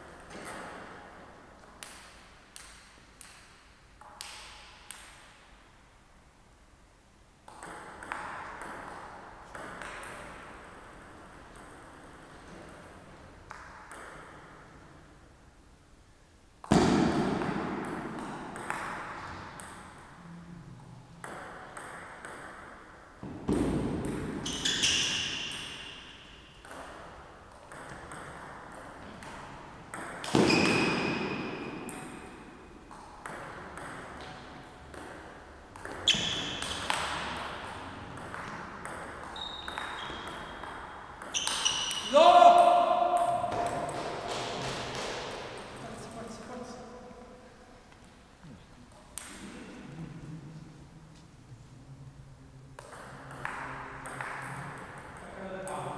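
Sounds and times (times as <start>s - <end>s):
shoe squeaks on floor: 24.4s - 25.9s, 30.3s - 31.2s, 36.0s - 36.8s, 39.3s - 40.6s, 41.3s - 42.2s.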